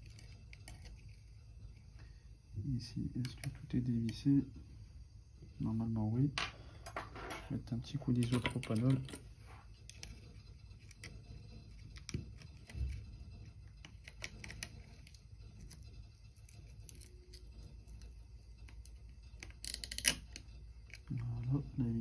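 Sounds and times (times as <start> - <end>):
small tools clicking and scraping: 0.0 - 1.8, 6.8 - 21.5.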